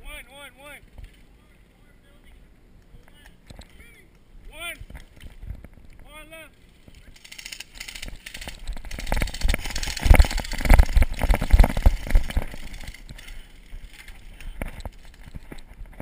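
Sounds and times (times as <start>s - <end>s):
grass brushing camera: 6.6s - 16.0s
running footsteps: 6.8s - 16.0s.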